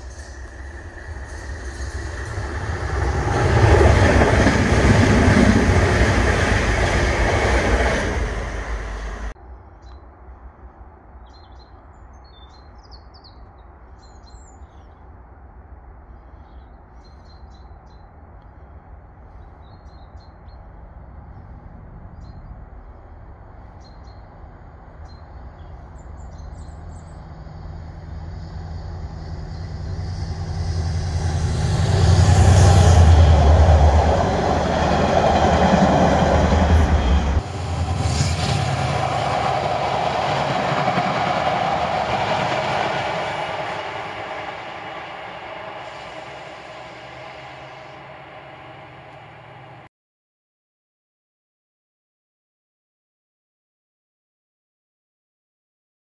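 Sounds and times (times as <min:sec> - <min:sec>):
birds chirping: 0:00.0 - 0:09.3
diesel locomotive engine: 0:00.0 - 0:09.4, 0:26.8 - 0:49.9
train wheels rolling on rails: 0:00.0 - 0:09.4, 0:27.9 - 0:49.9.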